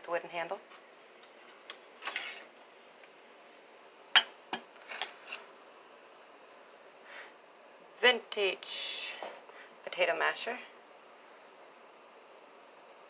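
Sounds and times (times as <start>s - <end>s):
metal utensils clinking: 1.6s - 2.5s.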